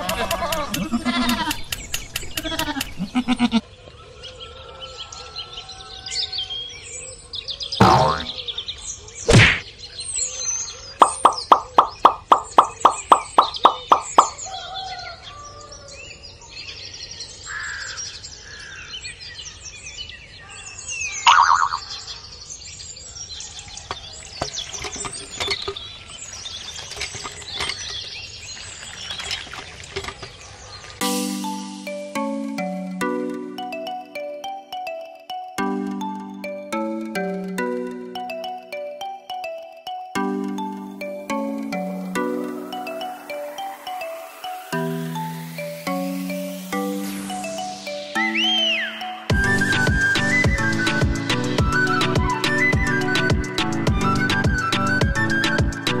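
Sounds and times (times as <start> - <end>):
sharp clicks: 0.0 - 3.1, 11.0 - 14.4
small birds chirping: 0.0 - 32.0
goat bleating: 0.1 - 1.6, 2.4 - 3.6.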